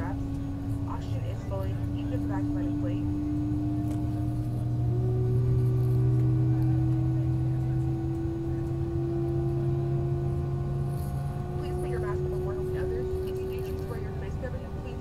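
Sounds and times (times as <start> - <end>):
jet engines humming in cabin: 0.0 - 15.0.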